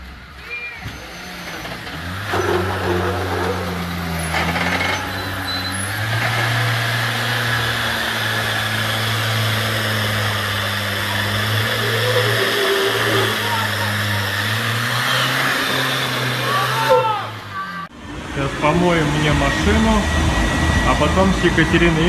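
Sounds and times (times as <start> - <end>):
car engine droning: 0.0 - 22.0.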